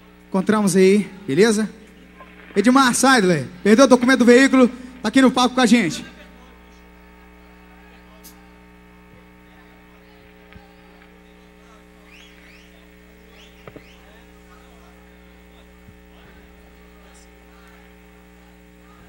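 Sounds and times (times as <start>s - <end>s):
electrical mains hum: 0.0s - 19.0s
faint clicks and chirps: 12.0s - 14.2s.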